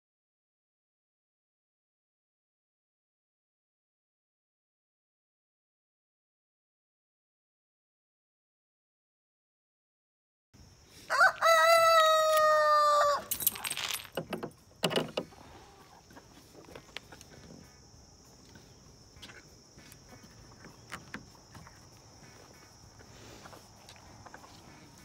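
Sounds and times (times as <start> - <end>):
high insect drone: 10.6 - 25.0
rooster crowing: 11.1 - 13.3.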